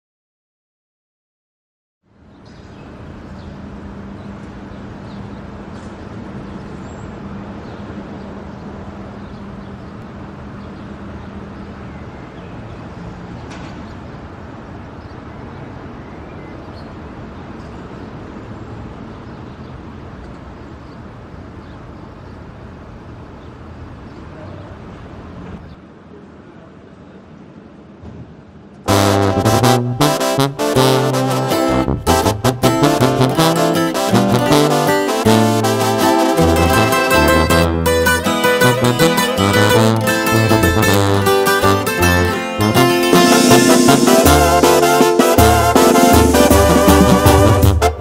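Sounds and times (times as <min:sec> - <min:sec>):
distant traffic hum: 0:02.1 - 0:48.0
low drone: 0:28.9 - 0:47.7.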